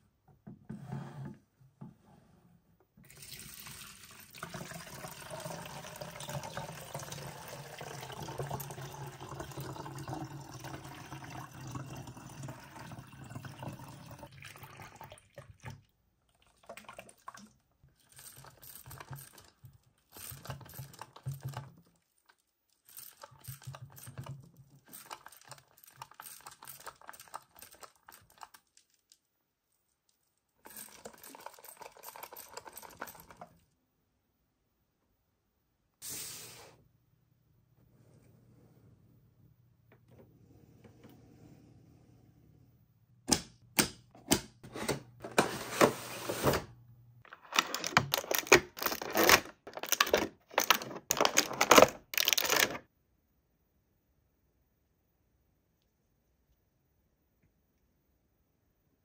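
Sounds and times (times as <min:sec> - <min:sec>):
water pouring into plastic toy: 0:03.0 - 0:22.0, 0:23.0 - 0:29.0, 0:30.6 - 0:33.6, 0:47.3 - 0:52.9
water sloshing inside toy: 0:13.4 - 0:29.2, 0:30.6 - 0:33.8, 0:47.3 - 0:52.9.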